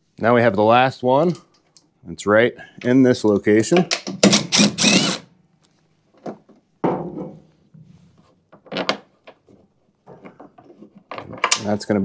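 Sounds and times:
knocks and clunks of tool handling: 3.6 - 4.5, 6.1 - 7.9, 8.5 - 11.8
cordless drill motor whine: 4.5 - 5.3.

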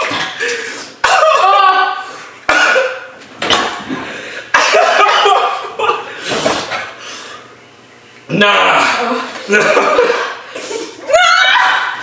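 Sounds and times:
person crying out in pain: 1.0 - 3.1
person coughing: 2.5 - 3.1, 4.5 - 5.6.

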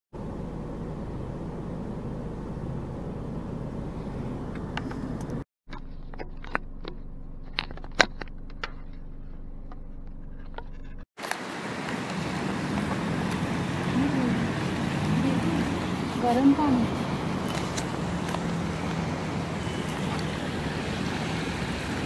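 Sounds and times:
low hum inside car: 0.2 - 11.1.

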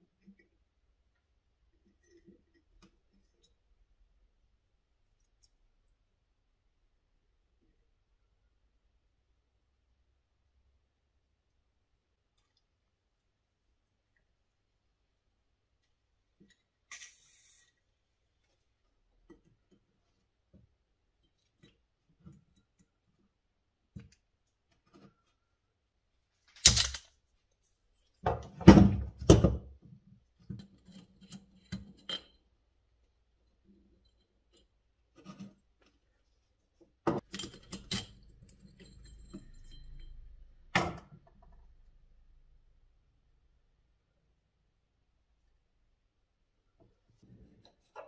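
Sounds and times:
metal parts clinking on workbench: 26.6 - 27.1.

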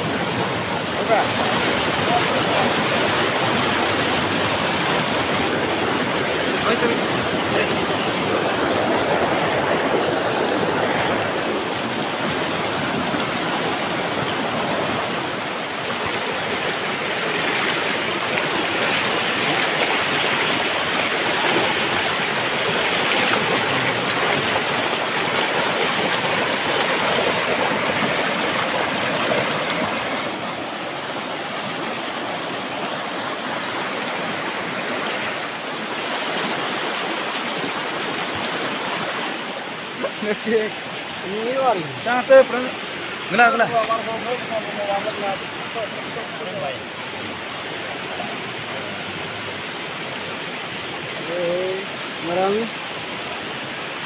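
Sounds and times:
river rushing over rocks: 0.0 - 54.0.

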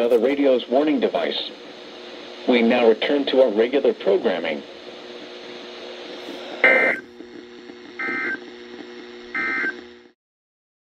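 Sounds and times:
low steady buzz: 0.0 - 10.2.

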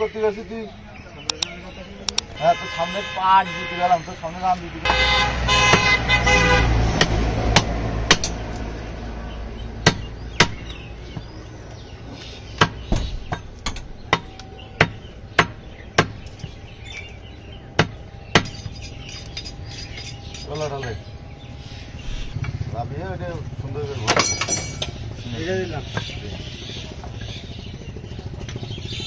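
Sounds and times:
traffic rumble: 0.0 - 29.0
cleaver chopping meat on wood: 7.0 - 8.6, 9.8 - 11.4, 12.1 - 16.6, 17.7 - 18.8.

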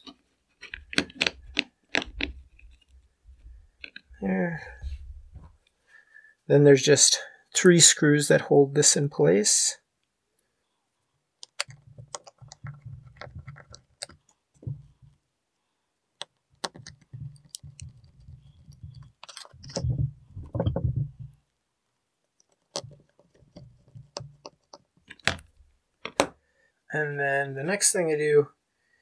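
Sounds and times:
screwdriver turning small screws: 16.6 - 19.8.

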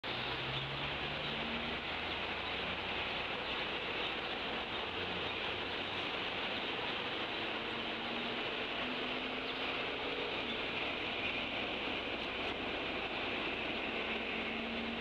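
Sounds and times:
microphone hiss: 0.1 - 15.0.

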